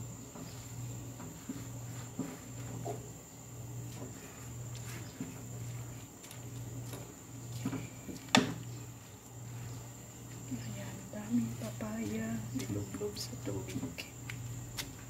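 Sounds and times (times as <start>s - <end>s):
steady low hum: 0.0s - 15.0s
wooden spoon stirring in bowl: 0.4s - 3.1s.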